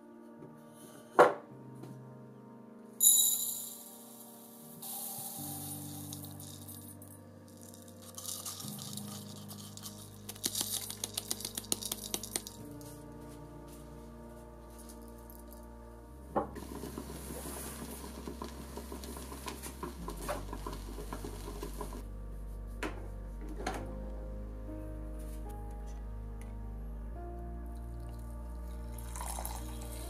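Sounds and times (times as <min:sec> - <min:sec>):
soft background music: 0:00.0 - 0:30.0
coffee maker sputtering and hissing: 0:04.8 - 0:06.6, 0:16.6 - 0:22.0, 0:29.0 - 0:30.0
rice rattling in metal pot: 0:05.6 - 0:06.8, 0:07.6 - 0:12.6.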